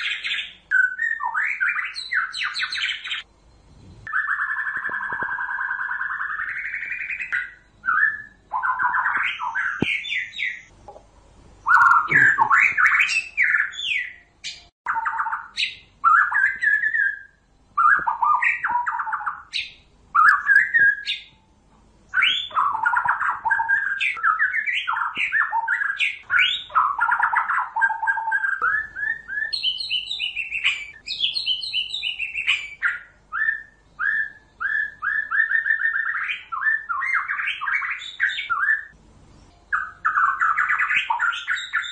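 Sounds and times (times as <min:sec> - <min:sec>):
bird singing whistled phrases: 0:00.0 - 0:03.3, 0:04.1 - 0:10.7, 0:11.6 - 0:21.4, 0:22.1 - 0:39.0, 0:39.7 - 0:41.9.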